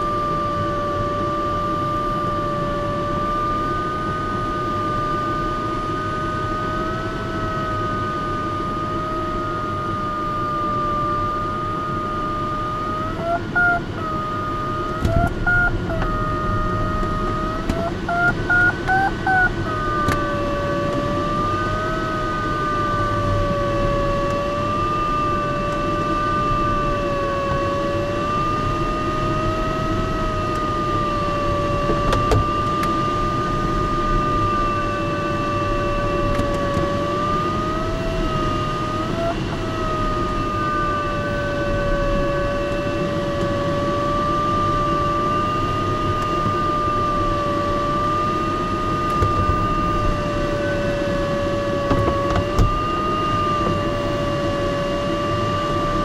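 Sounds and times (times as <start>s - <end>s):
cockpit airflow noise: 0.0s - 56.0s
variometer wavering tone: 0.0s - 56.0s
variometer high beeps: 15.1s - 15.9s, 17.8s - 19.6s.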